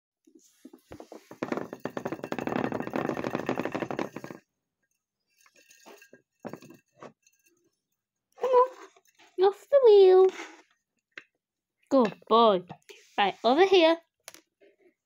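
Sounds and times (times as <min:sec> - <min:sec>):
plastic exercise wheel rattling: 0:00.7 - 0:04.5, 0:05.4 - 0:07.6.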